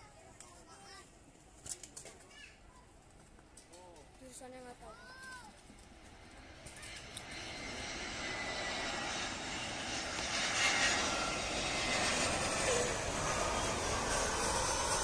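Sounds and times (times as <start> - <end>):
jet engines rushing: 5.6 - 15.0.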